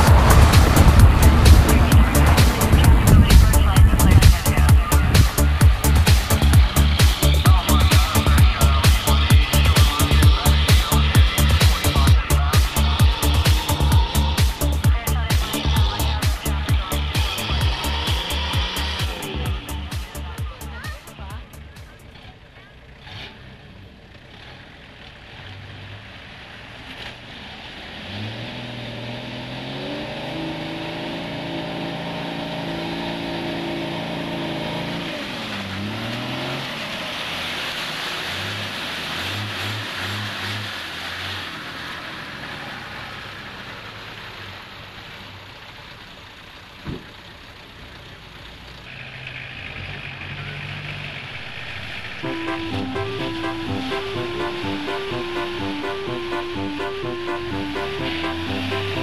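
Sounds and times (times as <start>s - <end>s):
water and mud splashing: 0.0s - 11.8s, 33.6s - 43.2s
vehicle engine revving: 0.0s - 59.0s.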